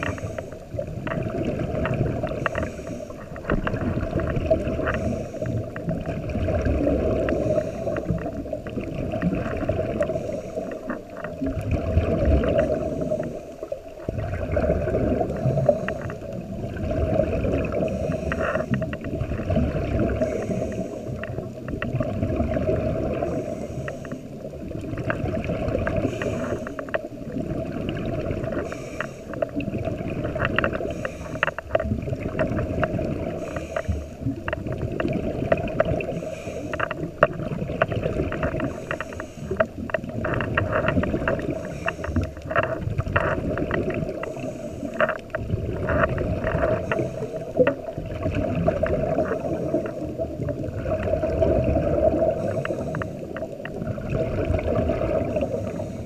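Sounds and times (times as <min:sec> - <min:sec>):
diver breathing through regulator: 0:00.0 - 0:00.8, 0:02.2 - 0:03.8, 0:04.5 - 0:06.0, 0:07.0 - 0:08.8, 0:09.8 - 0:11.4, 0:12.4 - 0:14.0, 0:15.2 - 0:16.4, 0:17.6 - 0:19.1, 0:19.9 - 0:21.6, 0:22.8 - 0:24.5, 0:25.7 - 0:27.1, 0:28.3 - 0:31.9, 0:33.1 - 0:34.8, 0:35.5 - 0:37.2, 0:38.3 - 0:48.0, 0:48.6 - 0:50.2, 0:51.2 - 0:53.8, 0:55.0 - 0:56.0
bubbles crackling underwater: 0:00.0 - 0:56.0.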